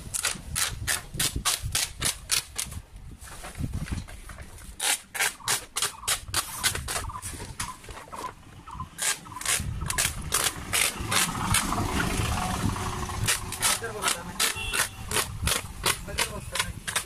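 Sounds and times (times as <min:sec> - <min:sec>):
low rumble: 0:09.6 - 0:13.7.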